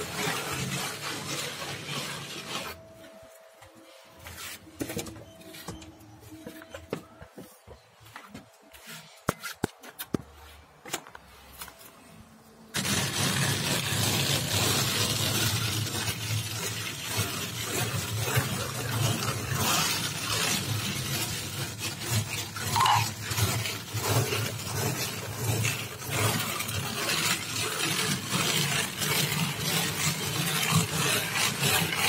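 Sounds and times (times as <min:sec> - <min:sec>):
float scraping gritty plaster: 0:00.0 - 0:03.3, 0:12.7 - 0:32.0.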